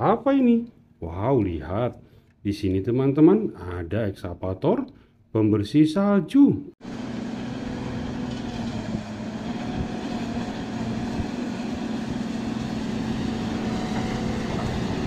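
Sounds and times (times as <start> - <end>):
diesel engine running under load: 6.8 - 15.0.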